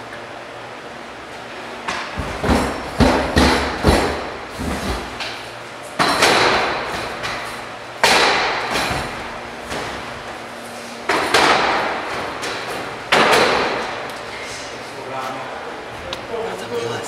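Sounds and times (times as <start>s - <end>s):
metal ladder banging with echo: 1.8s - 5.4s, 6.0s - 10.2s, 11.0s - 14.1s.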